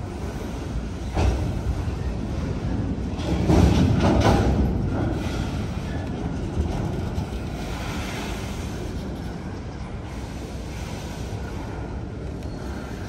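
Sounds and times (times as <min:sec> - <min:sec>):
train wheels rumbling on rail: 0:00.0 - 0:13.0.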